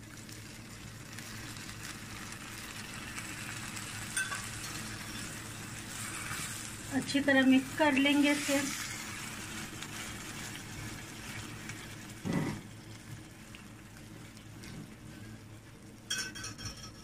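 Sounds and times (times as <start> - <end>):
food sizzling in a pan: 0.0 - 16.9
knock or scrape: 12.2 - 12.6.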